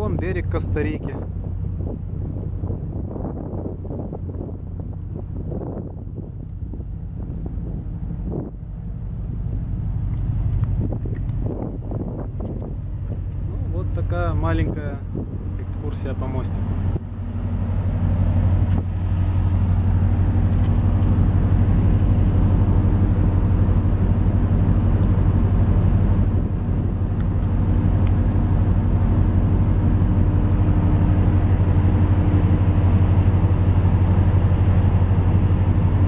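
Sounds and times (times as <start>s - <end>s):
ship engines droning: 0.0s - 36.0s.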